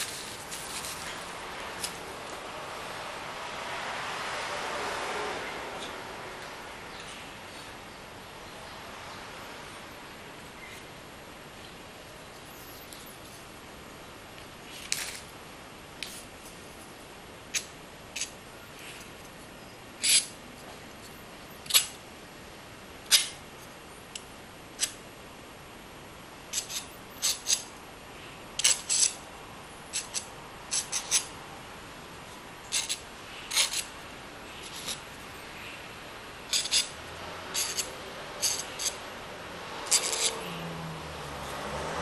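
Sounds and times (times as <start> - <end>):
palette knife scraping paint: 32.7 - 33.9, 34.6 - 35.1, 36.5 - 36.9, 37.5 - 39.0, 39.8 - 40.4.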